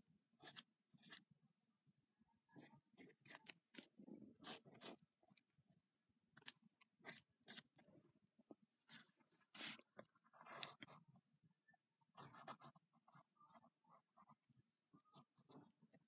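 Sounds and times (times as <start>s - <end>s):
ballpoint pen scratching on paper: 0.4s - 1.2s, 2.9s - 5.1s, 8.9s - 11.0s, 12.2s - 14.4s.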